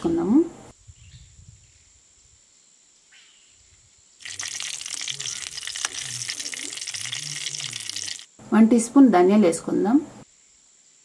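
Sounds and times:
steel spoon stirring: 0:04.2 - 0:08.3
chillies sizzling in hot oil: 0:04.2 - 0:08.4.

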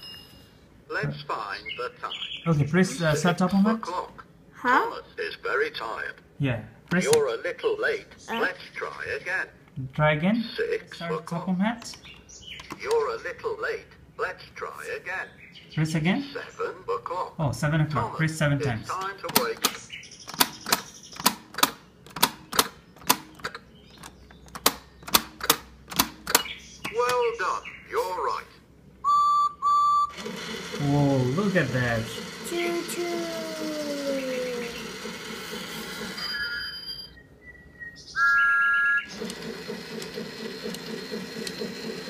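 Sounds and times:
whistle-like electronic tone: 0:29.0 - 0:30.2, 0:36.2 - 0:39.1
toy train motor chugging: 0:30.1 - 0:36.4, 0:39.1 - 0:42.0.

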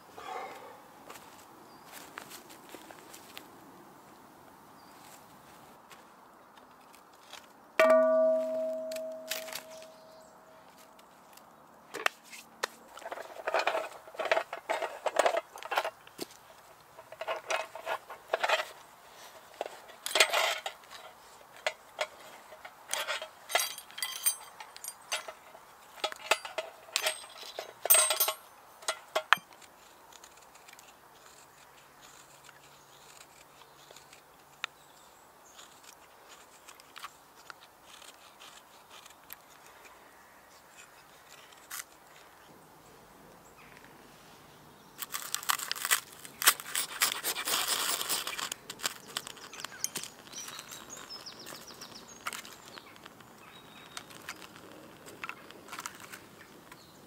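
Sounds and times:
metal kit clinking and rattling: 0:13.0 - 0:16.0, 0:19.6 - 0:29.4.

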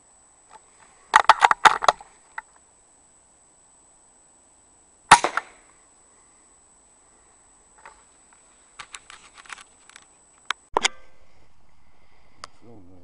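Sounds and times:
faint high-pitched whine: 0:00.0 - 0:13.0
rifle shot: 0:05.1 - 0:05.7.

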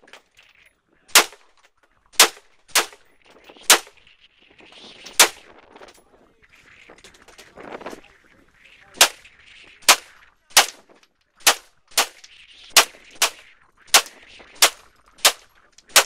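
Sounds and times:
pistol shots: 0:01.1 - 0:01.4, 0:02.2 - 0:03.0, 0:09.8 - 0:16.0.

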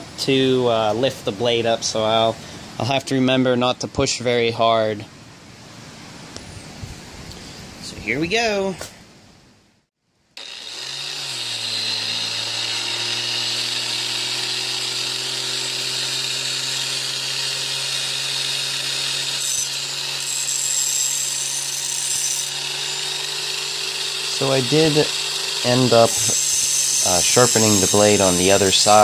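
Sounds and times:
angle grinder running: 0:10.4 - 0:29.0
blade grinding against wheel: 0:10.4 - 0:29.0.

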